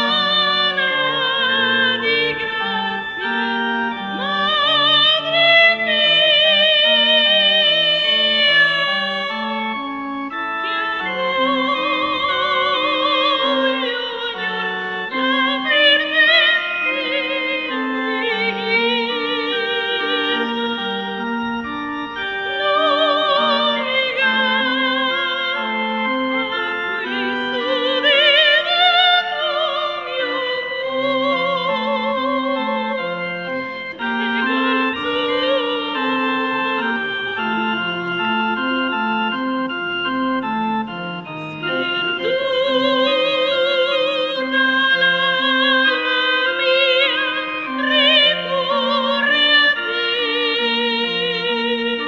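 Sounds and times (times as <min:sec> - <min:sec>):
operatic singing with vibrato: 0:00.0 - 0:38.7, 0:40.8 - 0:52.0
organ-like keyboard broken chords: 0:00.0 - 0:52.0.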